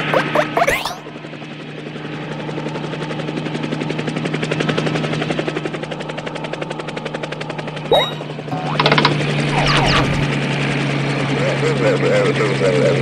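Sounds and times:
cartoon helicopter rotor chopping: 0:00.0 - 0:01.8, 0:07.8 - 0:10.9.

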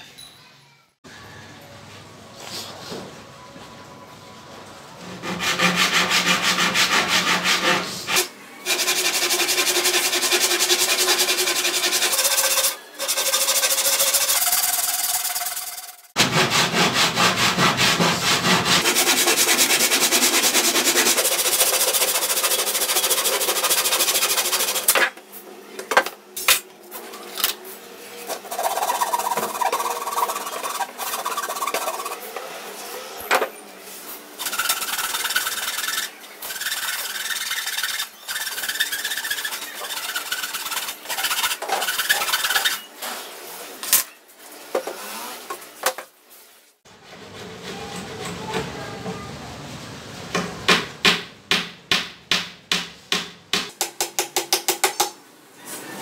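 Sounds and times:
handsaw cutting particleboard: 0:05.2 - 0:25.1, 0:28.3 - 0:32.2, 0:34.4 - 0:42.9.

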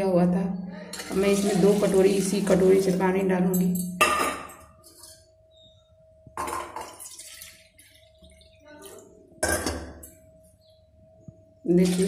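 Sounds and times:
water poured and splashing: 0:01.0 - 0:03.0, 0:06.9 - 0:08.6.

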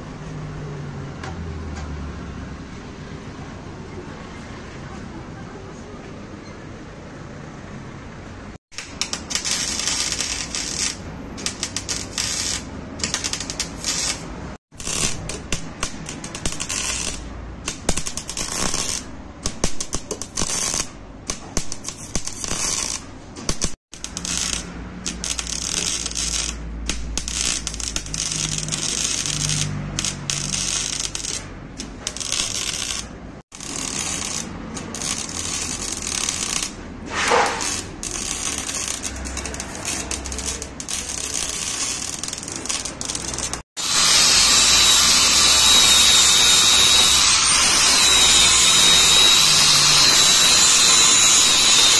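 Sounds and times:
welding arc crackling: 0:08.7 - 0:51.9
brief rising whine: 0:43.8 - 0:51.9.

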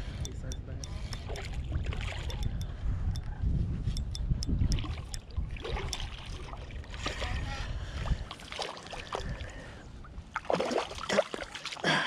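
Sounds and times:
low rumble of moving water: 0:00.1 - 0:03.4, 0:04.4 - 0:12.0
river water sloshing and splashing: 0:04.7 - 0:12.0.

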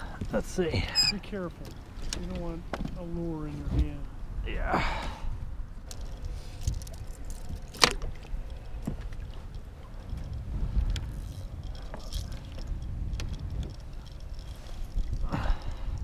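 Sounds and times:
wind rumble on microphone: 0:00.0 - 0:16.0.

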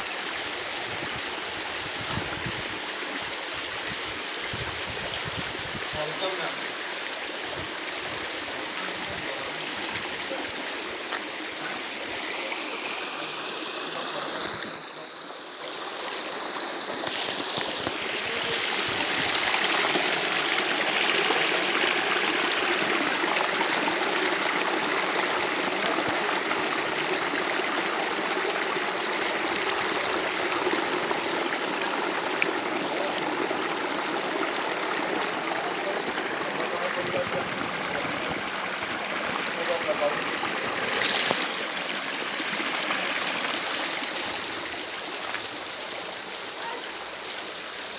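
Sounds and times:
stream splashing over rocks: 0:00.0 - 0:47.9.

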